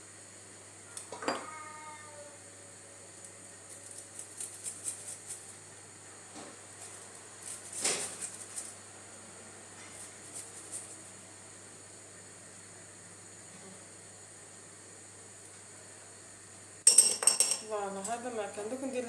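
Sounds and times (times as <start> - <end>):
garlic rasping on metal grater: 3.6 - 5.5.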